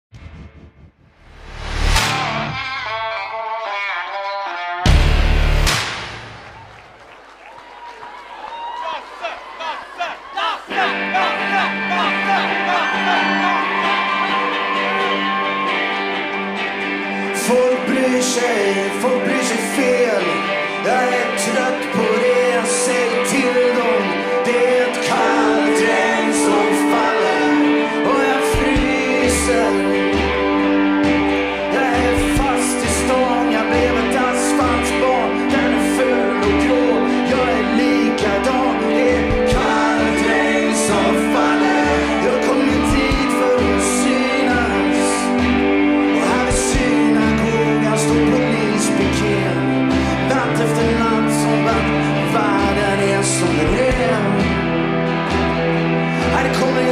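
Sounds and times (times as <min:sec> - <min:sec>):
drums: 0:00.0 - 0:03.3, 0:04.8 - 0:07.3, 0:24.9 - 0:56.9
bass line: 0:00.0 - 0:03.4, 0:04.8 - 0:06.7, 0:24.5 - 0:56.9
acoustic and electric guitars: 0:01.9 - 0:05.8, 0:10.7 - 0:56.9
backing voices: 0:08.7 - 0:56.9
man singing: 0:10.7 - 0:14.4, 0:17.2 - 0:30.6, 0:31.2 - 0:54.8, 0:56.1 - 0:56.9.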